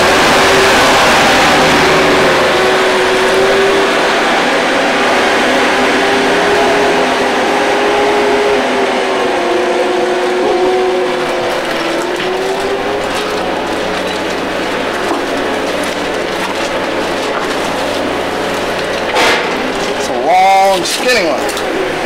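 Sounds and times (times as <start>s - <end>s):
motor humming: 0.0s - 22.0s.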